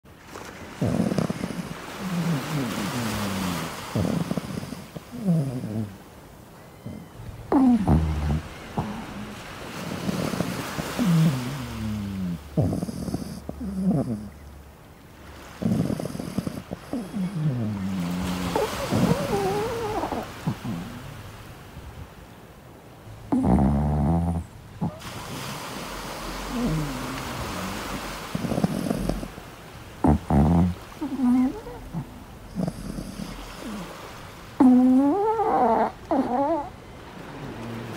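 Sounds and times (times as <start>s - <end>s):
ocean surf: 0.1s - 5.2s, 7.2s - 12.6s, 17.5s - 23.3s, 24.6s - 28.5s, 33.3s - 34.6s, 35.9s - 37.9s
puppy whining in sleep: 0.8s - 6.0s, 6.6s - 14.4s, 15.6s - 21.2s, 23.2s - 25.6s, 26.5s - 29.4s, 30.0s - 34.0s, 34.6s - 37.9s
puppy whimpering: 15.7s - 21.0s, 30.1s - 33.9s, 34.6s - 37.9s.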